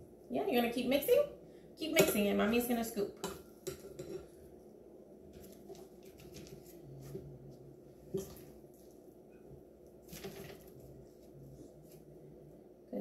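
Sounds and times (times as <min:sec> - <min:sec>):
spoon stirring dough in glass bowl: 0:03.2 - 0:04.5, 0:05.2 - 0:12.2.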